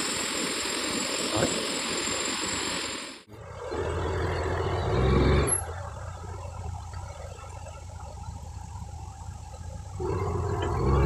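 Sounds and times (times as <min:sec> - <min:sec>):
loud rushing hiss: 0:00.0 - 0:03.3.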